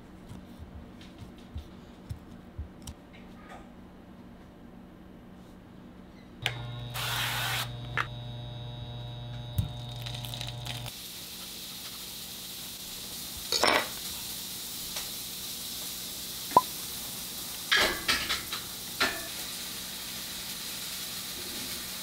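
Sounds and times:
low electric hum: 0.0 - 10.9
food sizzling in a frying pan: 9.7 - 22.0
utensils clinking on cookware: 13.5 - 14.0, 17.7 - 19.4.

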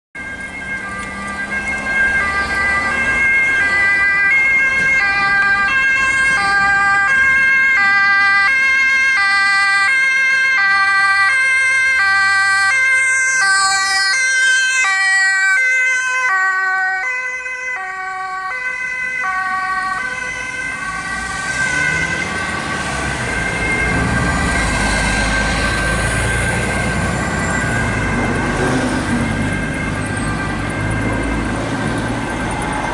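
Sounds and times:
road traffic: 0.1 - 32.9
ambulance two-tone siren: 0.2 - 32.9
heavy vehicle engine: 19.5 - 32.9.

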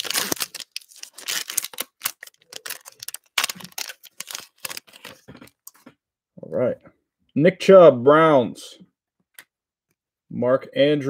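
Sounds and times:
foil wrapper crinkling and tearing: 0.0 - 5.8.

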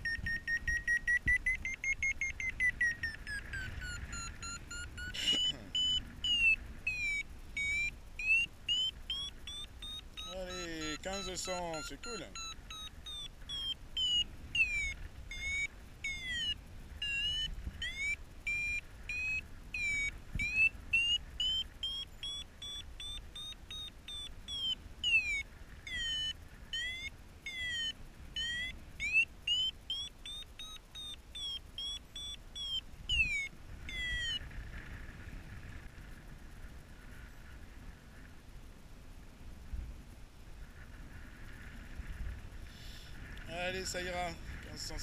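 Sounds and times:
variometer high chirping beeps: 0.0 - 34.4
low wind rumble: 0.0 - 45.0.

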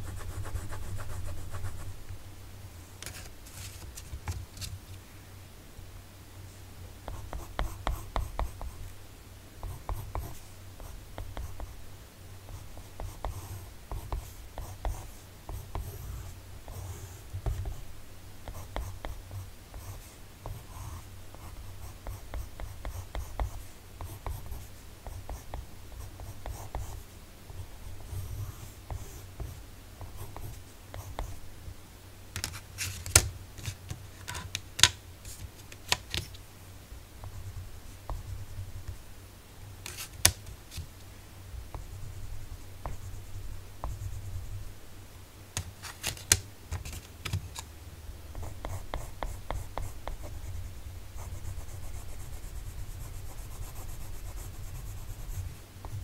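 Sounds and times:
pencil scratching on paper: 0.0 - 1.9, 51.2 - 56.0.

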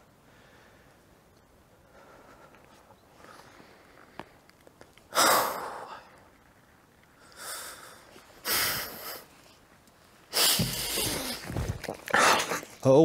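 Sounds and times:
man sniffing while crying: 8.4 - 9.3, 10.3 - 11.5.

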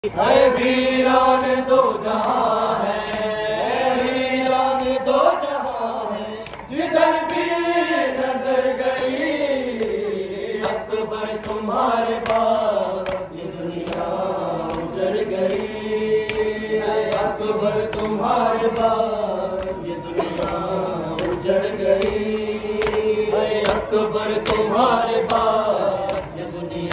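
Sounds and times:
men chanting a lament: 0.0 - 26.9
sharp slaps: 6.4 - 9.2, 10.6 - 19.0, 19.6 - 26.4.

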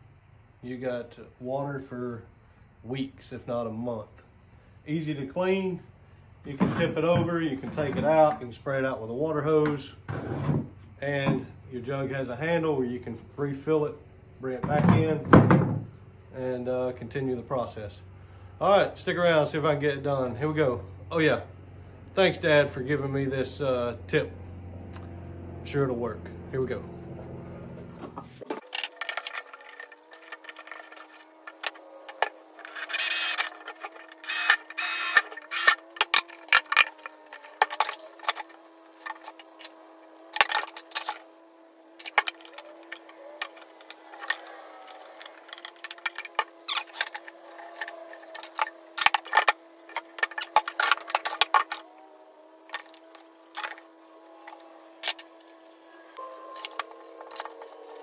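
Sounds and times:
faint steady hum: 28.4 - 58.0.

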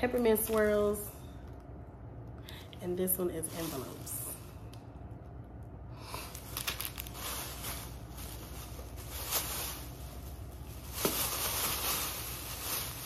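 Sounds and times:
plastic bag rustling: 0.0 - 1.3, 3.0 - 4.5, 6.0 - 13.0.

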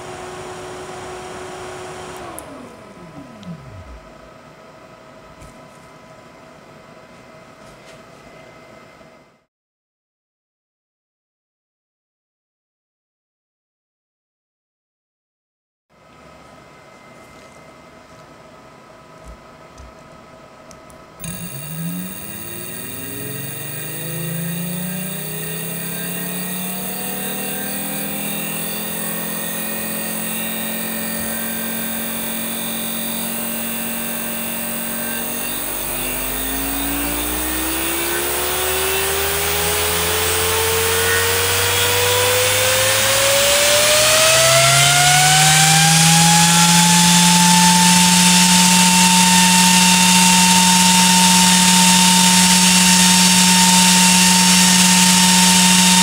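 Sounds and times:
fan spinning up: 0.0 - 5.7, 21.2 - 56.0.

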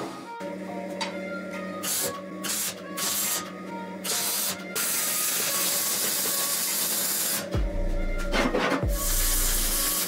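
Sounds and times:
arc welding crackle and hiss: 1.8 - 7.6, 8.9 - 10.0.

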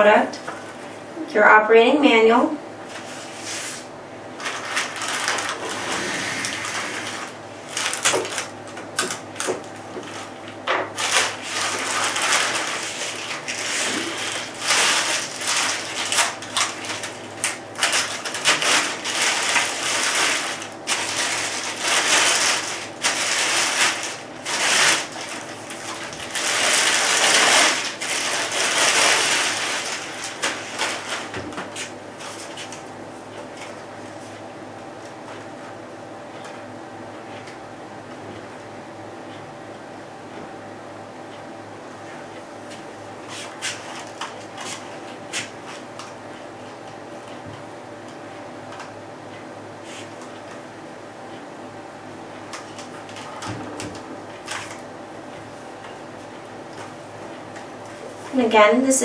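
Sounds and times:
plastic bag crinkling: 4.4 - 8.6, 11.0 - 32.8.

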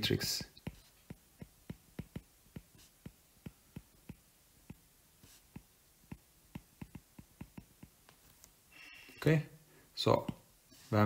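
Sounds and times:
stylus tapping on glass screen: 0.6 - 4.8, 5.5 - 8.2.

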